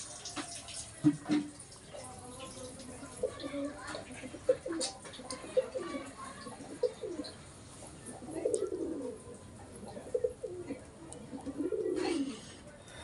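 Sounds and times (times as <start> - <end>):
pigeons cooing: 3.1 - 12.5.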